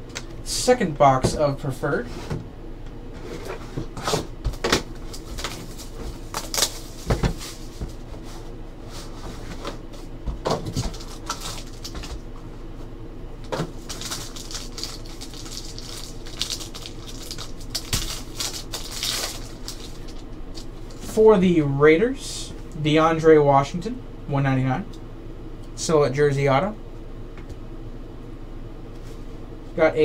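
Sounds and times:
foil wrapper tearing: 4.9s - 7.7s, 10.8s - 12.2s, 13.8s - 20.7s.

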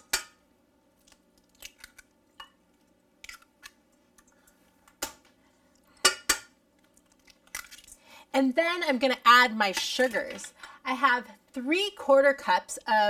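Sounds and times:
eggshell cracking: 1.0s - 2.2s.

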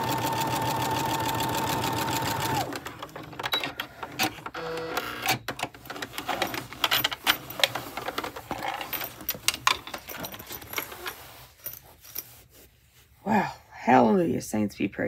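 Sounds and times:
sewing machine stitching: 0.0s - 8.9s
fabric rustling: 5.8s - 13.3s.

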